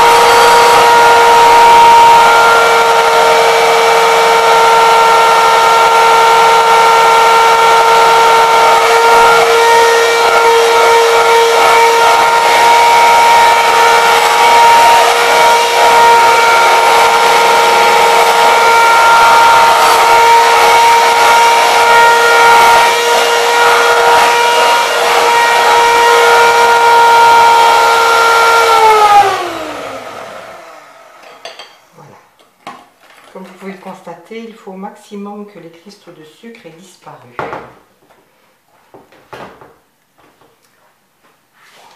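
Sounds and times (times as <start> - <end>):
mixer motor winding down: 0.0 - 31.2
electric hand mixer whining: 0.0 - 31.8.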